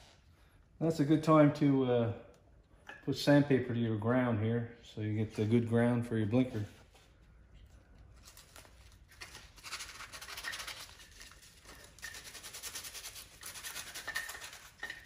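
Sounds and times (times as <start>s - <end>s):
sandpaper scratching metal: 9.6s - 14.8s.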